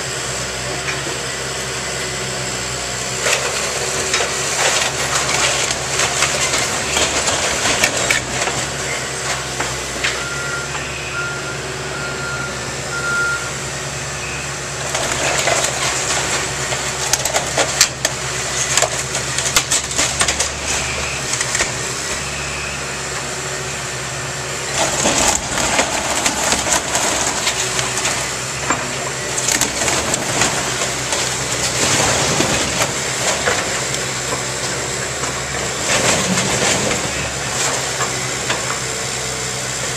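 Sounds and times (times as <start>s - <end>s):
excavator diesel engine running: 0.0s - 39.9s
timber cracking and splintering: 3.2s - 9.8s, 14.8s - 21.9s, 24.7s - 38.7s
debris crashing: 3.2s - 10.2s, 14.8s - 22.3s, 24.6s - 38.8s.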